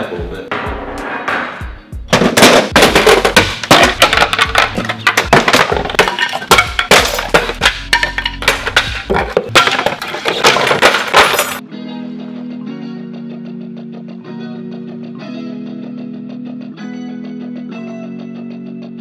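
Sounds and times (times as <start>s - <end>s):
background music: 0.0s - 19.0s
wooden cabinets clattering and cracking: 2.1s - 11.6s.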